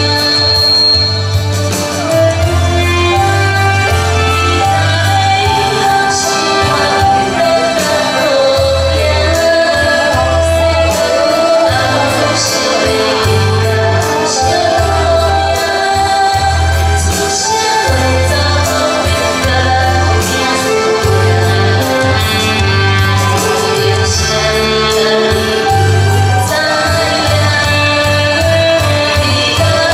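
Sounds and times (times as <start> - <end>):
keyboard bass notes: 0.0 - 29.9
saxophone: 0.0 - 29.9
woman singing into microphone: 0.0 - 29.9.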